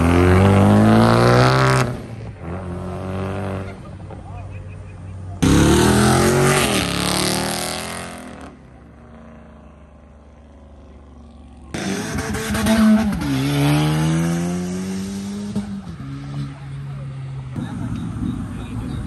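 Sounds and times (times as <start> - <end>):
car engine accelerating hard: 0.0 - 3.8, 5.3 - 8.6, 10.6 - 19.0.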